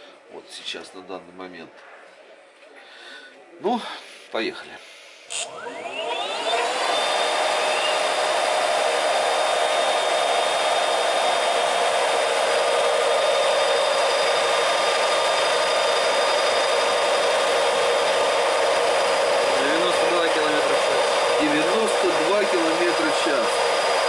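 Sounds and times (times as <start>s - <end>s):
electric motor whine: 5.3s - 24.0s
free-spinning wheel rushing: 5.7s - 24.0s.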